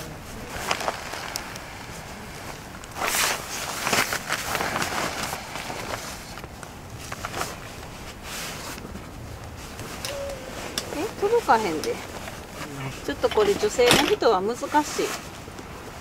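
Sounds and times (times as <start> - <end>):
fabric rustling: 0.0 - 16.0
frame clicks and knocks: 13.2 - 14.3.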